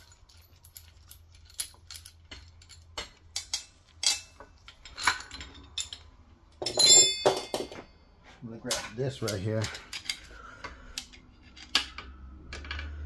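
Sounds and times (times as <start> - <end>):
metallic tool clinks: 6.6 - 8.0.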